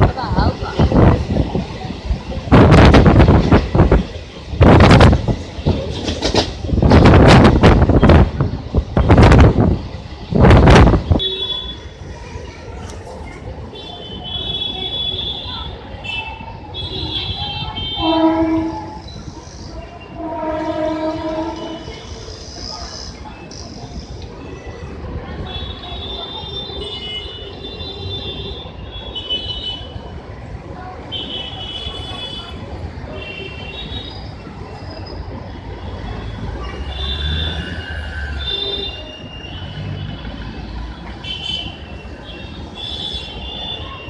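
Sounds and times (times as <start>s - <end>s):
train rumbling on rails: 0.0s - 44.0s
train horn blasts: 16.9s - 19.0s, 20.0s - 22.0s.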